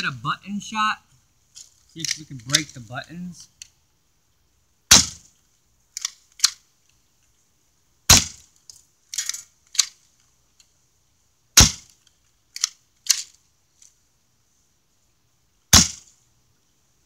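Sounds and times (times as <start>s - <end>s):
airsoft gun shots: 4.9s - 5.3s, 8.1s - 8.4s, 11.6s - 11.9s, 15.7s - 16.1s.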